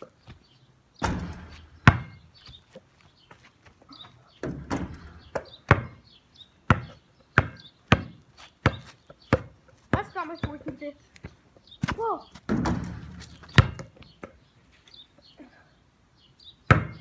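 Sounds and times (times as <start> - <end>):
ball banging backboard and rim: 1.0 - 2.3, 4.4 - 6.0, 6.7 - 10.8, 12.4 - 14.0, 16.7 - 17.0
basketball bouncing on hard ground: 1.0 - 14.5, 16.7 - 17.0.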